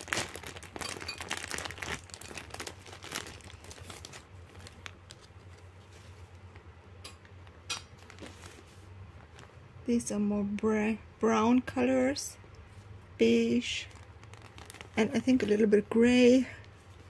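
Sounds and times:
plastic bag crinkling: 0:00.0 - 0:06.3, 0:07.9 - 0:09.6, 0:13.4 - 0:17.0.

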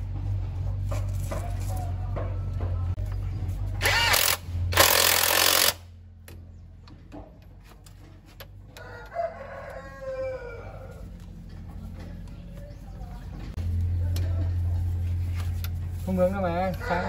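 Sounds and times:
rooster crowing: 0:08.7 - 0:11.2, 0:16.6 - 0:17.0.

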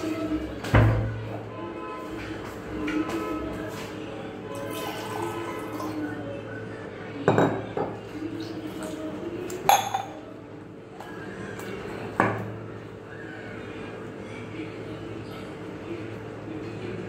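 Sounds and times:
water pouring: 0:04.6 - 0:06.1.

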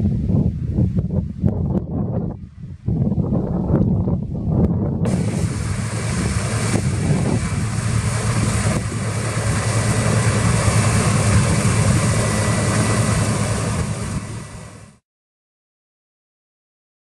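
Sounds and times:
combine harvester engine drone: 0:05.0 - 0:15.0
hiss of machinery: 0:05.1 - 0:15.0.

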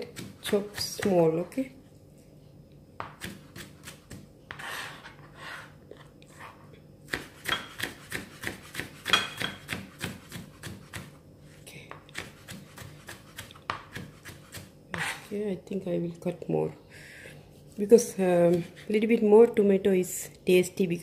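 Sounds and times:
knife scraping on cutting board: 0:03.1 - 0:11.1, 0:12.1 - 0:15.3.

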